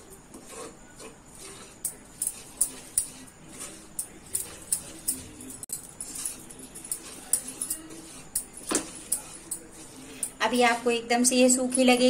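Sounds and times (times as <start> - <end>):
metal spoon scraping metal pan: 0.0 - 12.0.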